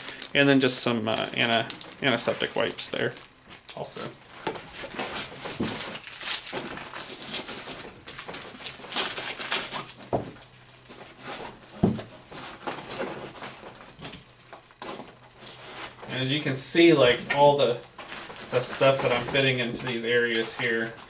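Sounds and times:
rustling items into nylon bag: 0.0 - 16.4, 17.1 - 21.0.

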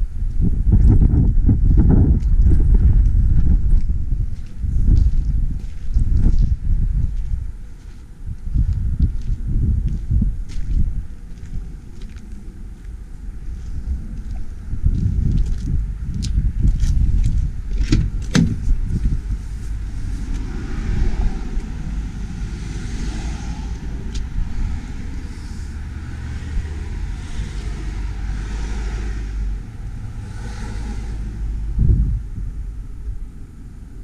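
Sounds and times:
steady low rumble: 0.0 - 34.0
van door clicks: 17.9 - 18.6.

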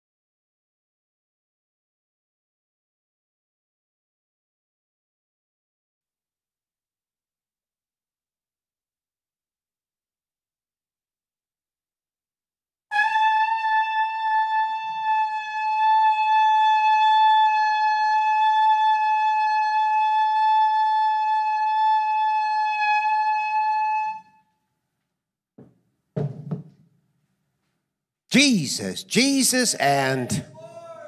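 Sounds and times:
shofar long high note: 12.9 - 24.3.

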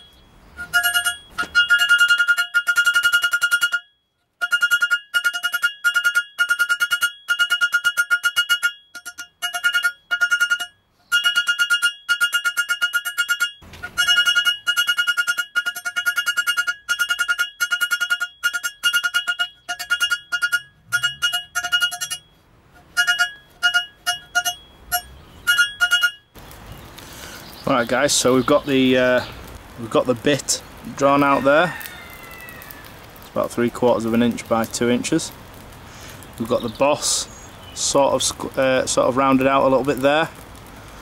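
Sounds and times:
hammer striking hot steel: 0.0 - 26.6.

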